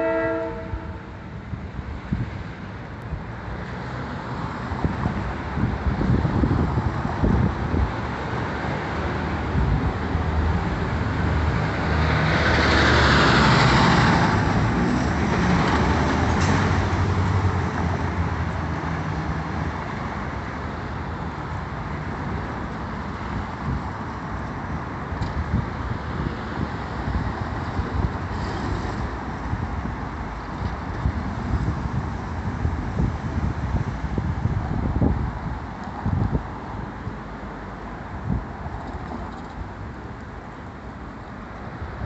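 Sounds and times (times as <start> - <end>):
cars driving past: 0.0 - 42.0
truck passing by: 8.4 - 19.8.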